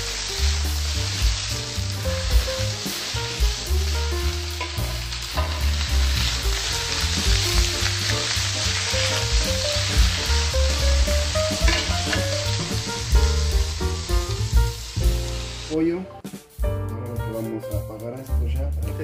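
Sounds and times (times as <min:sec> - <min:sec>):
vegetables tossed in pan: 0:00.0 - 0:13.8
vegetables sizzling in oil: 0:00.0 - 0:15.8.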